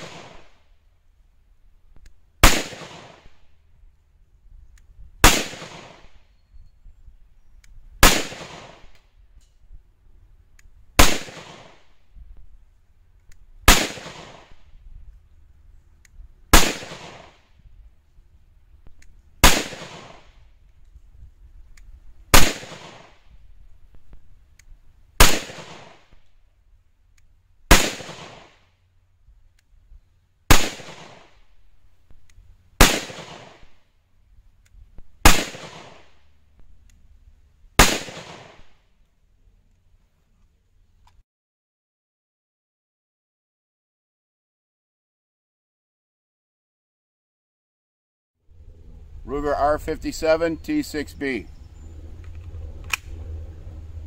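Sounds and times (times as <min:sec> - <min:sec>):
pistol shots with echo: 0:00.0 - 0:00.6, 0:02.4 - 0:03.4, 0:05.2 - 0:06.2, 0:08.0 - 0:09.0, 0:11.0 - 0:11.9, 0:13.7 - 0:14.7, 0:16.5 - 0:17.4, 0:19.4 - 0:20.4, 0:22.3 - 0:23.2, 0:25.2 - 0:26.2, 0:27.7 - 0:28.6, 0:30.5 - 0:31.4, 0:32.8 - 0:33.8, 0:35.2 - 0:36.2, 0:37.8 - 0:38.8.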